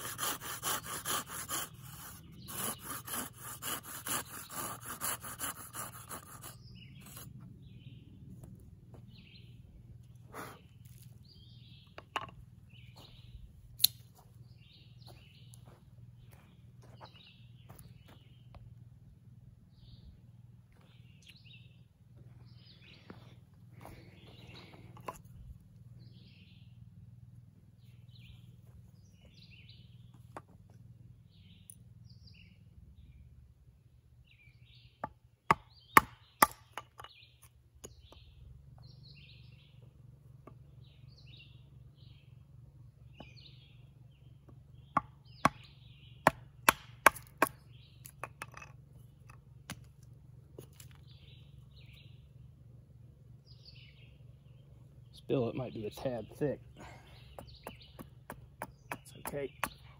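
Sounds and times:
birds chirping faintly: 0:00.0 - 0:59.9
edge tool chopping wood: 0:35.0 - 0:37.2, 0:44.5 - 0:49.9, 0:57.2 - 0:59.9.

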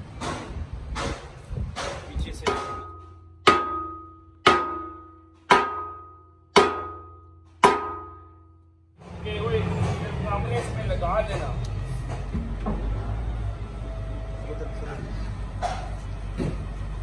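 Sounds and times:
hammer striking steel: 0:00.2 - 0:08.8.

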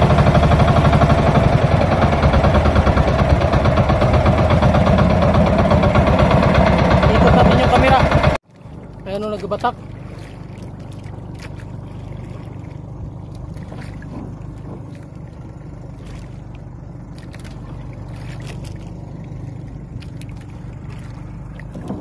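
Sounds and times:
wind and water rumble: 0:00.0 - 0:22.0.

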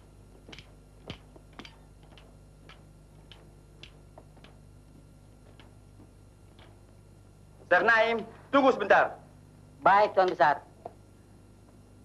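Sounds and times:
faint slow footsteps: 0:00.0 - 0:08.5
low film soundtrack hum: 0:00.0 - 0:12.0.

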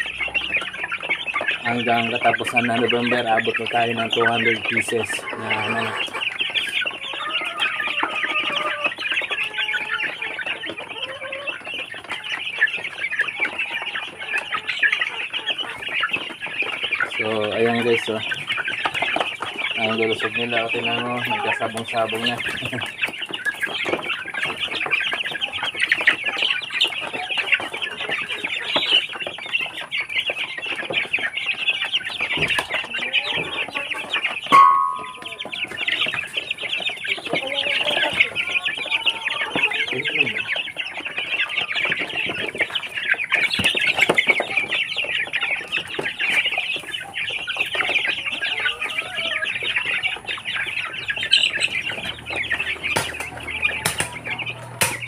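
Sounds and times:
chickens chirping and clucking: 0:00.0 - 0:55.0
loud chicken call: 0:04.9 - 0:15.9, 0:32.3 - 0:42.5, 0:45.5 - 0:55.0.

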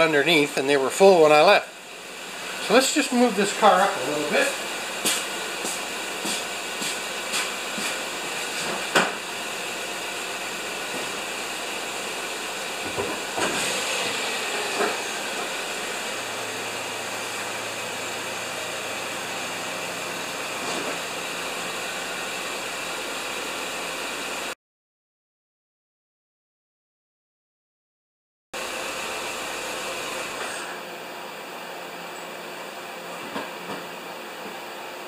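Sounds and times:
car engine idling: 0:01.2 - 0:24.5
footsteps: 0:05.0 - 0:09.1.

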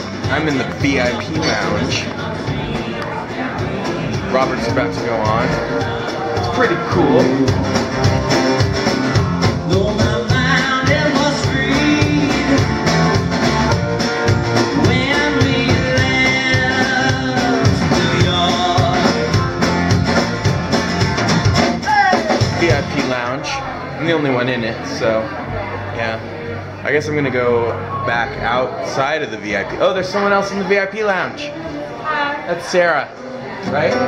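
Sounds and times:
drum kit beat: 0:00.0 - 0:23.2
acoustic guitar: 0:00.0 - 0:34.0
man singing: 0:04.2 - 0:08.1, 0:09.6 - 0:13.0, 0:14.7 - 0:19.4.

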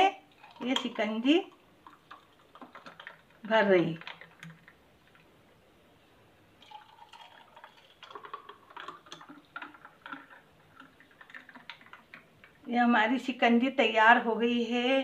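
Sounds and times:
liquid trickling into glass: 0:00.2 - 0:05.2, 0:06.6 - 0:12.7.

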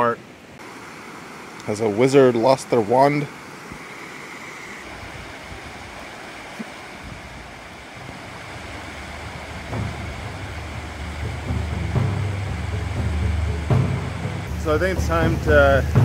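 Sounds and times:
creek babbling over rocks: 0:00.0 - 0:15.9
low rumble: 0:08.0 - 0:16.0.

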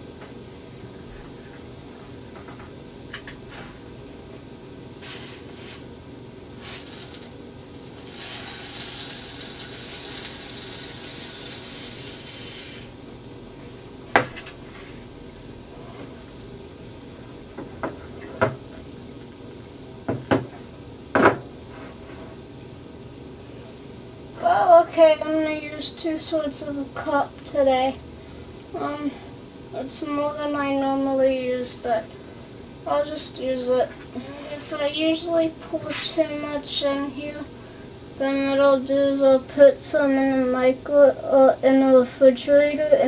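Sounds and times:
dry rice pouring into glass cup: 0:08.0 - 0:12.5.

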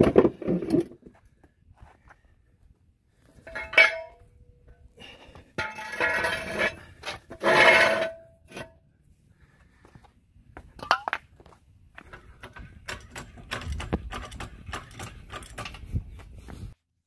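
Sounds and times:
metal jack stand clanking: 0:03.4 - 0:04.2
metal scraping on concrete: 0:05.6 - 0:08.8.

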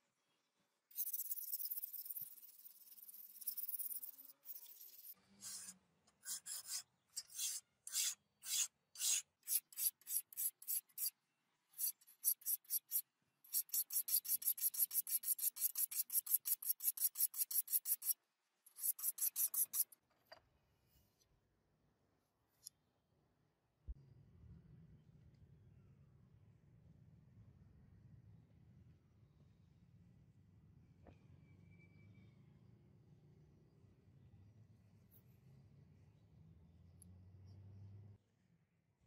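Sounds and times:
sharpening stone rasping on blade: 0:00.9 - 0:11.2, 0:11.8 - 0:20.0.

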